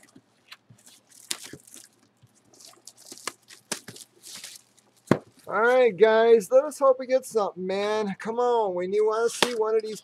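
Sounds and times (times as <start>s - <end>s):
plastic wrap snapping: 0.0s - 5.5s
plastic wrap crinkling and tearing: 0.0s - 5.6s.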